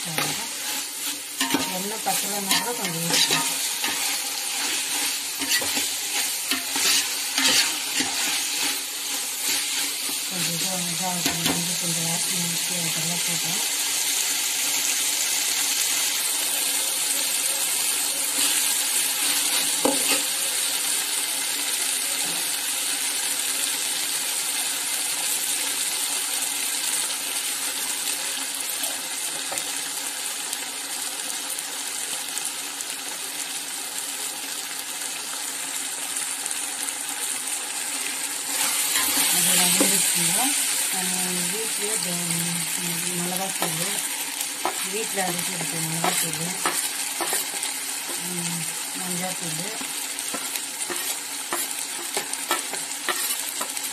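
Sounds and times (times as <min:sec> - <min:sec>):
food sizzling in hot oil: 0:00.0 - 0:53.9
ladle stirring: 0:00.2 - 0:10.3, 0:44.6 - 0:48.2.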